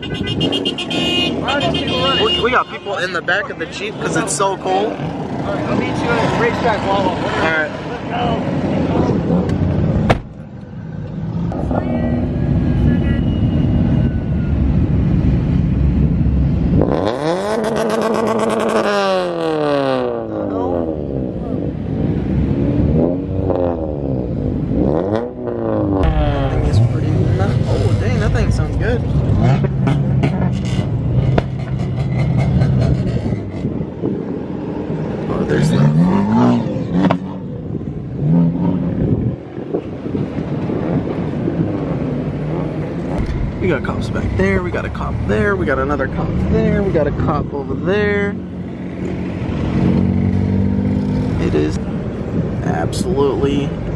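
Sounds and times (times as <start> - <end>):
low rumble of car engines: 0.0 - 53.9
car engine revving: 14.7 - 53.8
wind on microphone: 31.8 - 35.6, 37.3 - 45.0.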